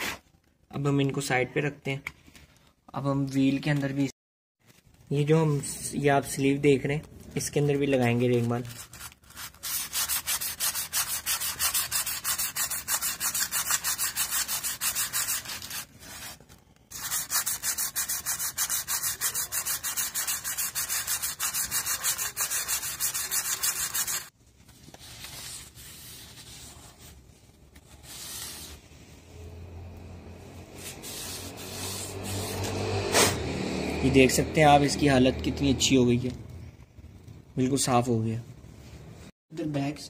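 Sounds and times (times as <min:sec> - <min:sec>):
sandpaper scrubbing metal drum: 0:09.6 - 0:15.8, 0:16.9 - 0:24.3.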